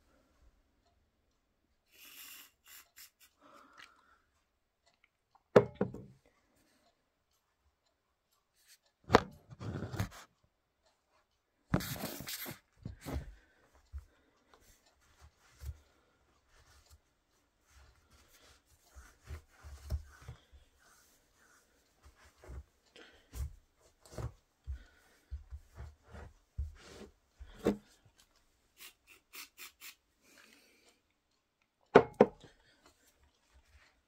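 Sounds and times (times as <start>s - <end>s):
aerosol can spraying: 1.9s - 3.3s, 28.8s - 30.0s.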